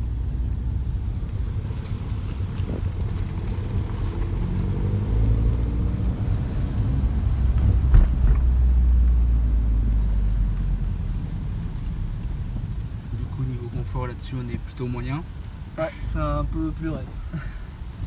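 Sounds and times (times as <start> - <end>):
low road rumble: 0.0 - 18.0
car engine revving: 0.9 - 10.4.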